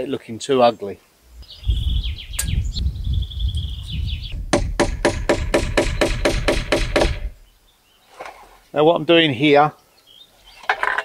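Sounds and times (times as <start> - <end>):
hammer striking nails into wood: 4.5 - 7.3.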